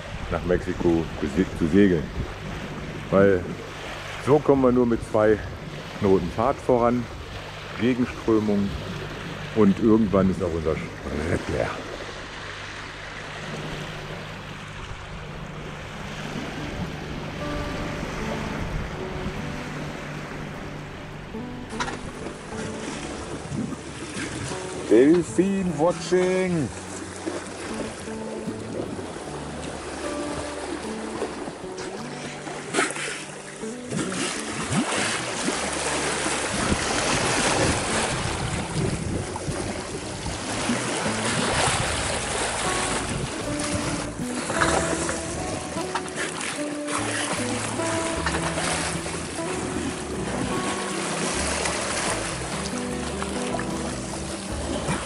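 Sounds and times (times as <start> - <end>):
wind buffeting microphone: 0.0 - 4.1, 4.8 - 25.4, 34.0 - 46.2
boat engine humming: 0.0 - 55.0
water rushing along hull: 0.0 - 55.0.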